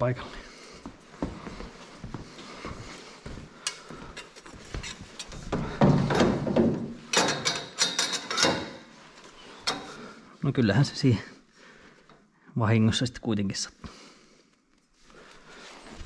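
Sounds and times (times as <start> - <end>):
steel plates clinking: 7.0 - 10.1.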